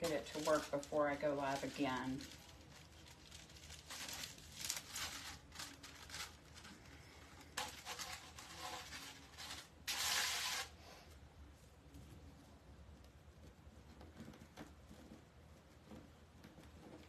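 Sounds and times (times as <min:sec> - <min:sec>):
plastic mesh rustling: 0:00.0 - 0:10.8.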